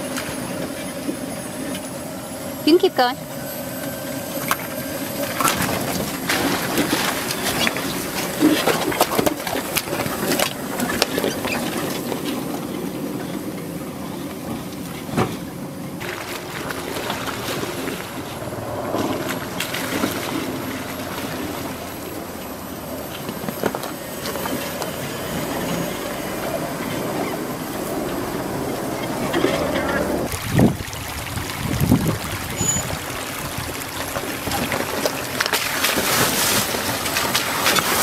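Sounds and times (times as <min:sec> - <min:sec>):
tyres splashing through water: 0:04.4 - 0:13.4, 0:16.0 - 0:27.8, 0:28.8 - 0:38.0.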